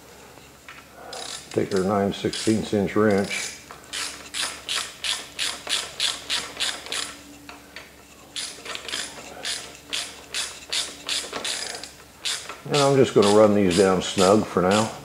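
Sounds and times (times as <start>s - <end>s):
socket ratchet clicking: 1.1s - 7.2s, 8.4s - 14.0s, 14.7s - 15.0s.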